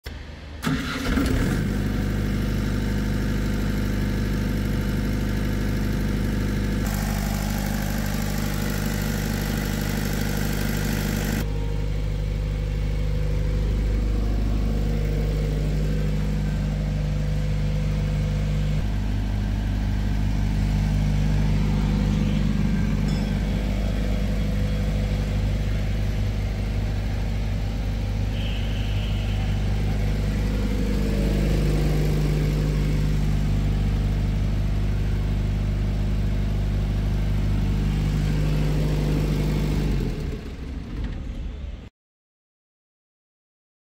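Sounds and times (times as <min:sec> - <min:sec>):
diesel generator running: 0:00.0 - 0:41.8
ignition key starting engine: 0:00.6 - 0:04.5, 0:06.8 - 0:11.9.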